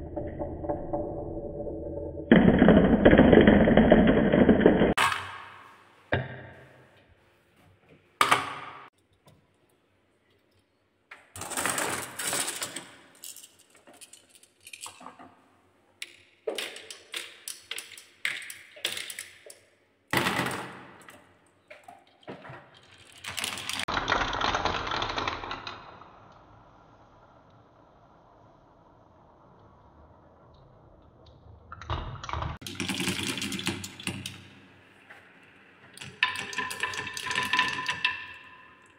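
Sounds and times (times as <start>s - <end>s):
marbles clicking on wooden track: 16.0s - 19.7s, 22.1s - 26.0s, 32.6s - 34.5s, 35.9s - 38.9s
marbles rolling on wooden spiral: 22.8s - 26.0s, 36.0s - 38.9s.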